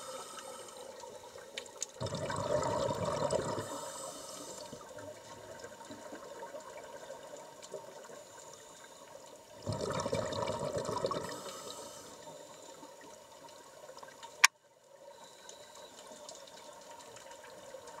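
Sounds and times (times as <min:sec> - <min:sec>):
regulator bubbles gurgling: 0:00.0 - 0:08.1, 0:09.5 - 0:12.3.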